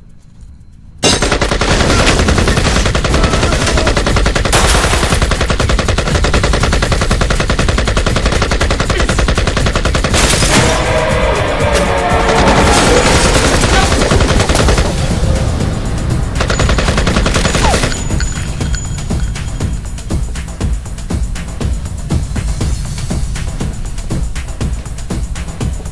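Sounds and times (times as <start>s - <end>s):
automatic machine-gun fire: 1.0s - 10.7s, 16.4s - 18.1s.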